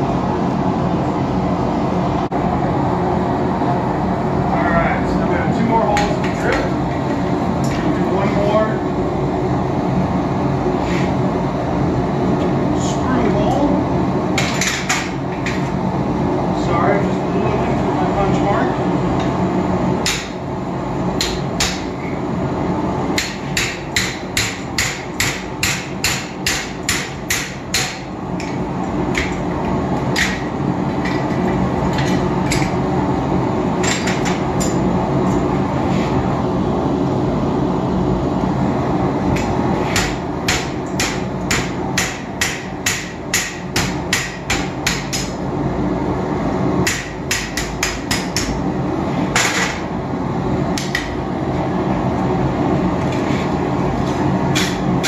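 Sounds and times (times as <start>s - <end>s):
hammer striking steel on anvil: 21.2s - 21.9s, 23.2s - 29.4s, 39.9s - 45.4s, 46.8s - 48.6s, 54.5s - 54.8s.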